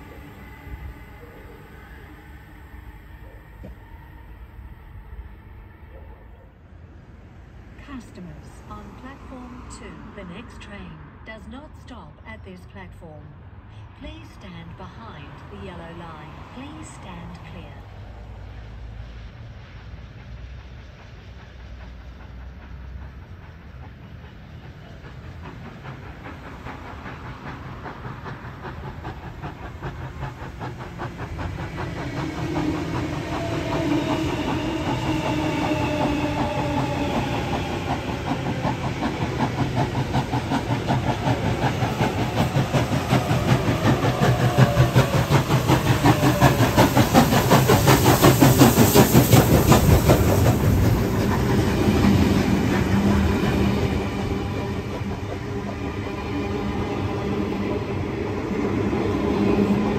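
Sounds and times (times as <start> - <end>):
steam locomotive exhaust beat: 0.0 - 6.6, 13.8 - 59.9
electric train whine: 0.0 - 59.9
wheels clattering on rails: 20.2 - 59.9.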